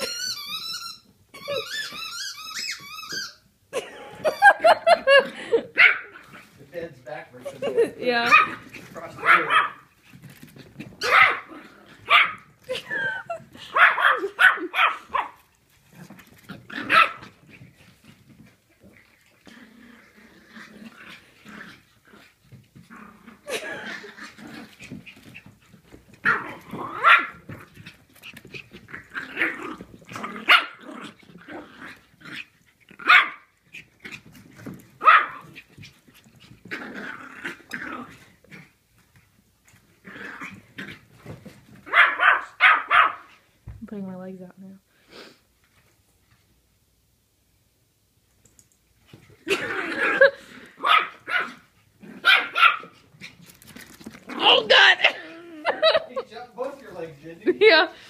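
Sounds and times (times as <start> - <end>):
puppy yapping: 9.2 - 9.8, 11.0 - 11.5, 13.7 - 15.4, 26.2 - 27.4, 35.0 - 35.5, 41.9 - 43.3, 49.5 - 51.6, 52.2 - 53.0.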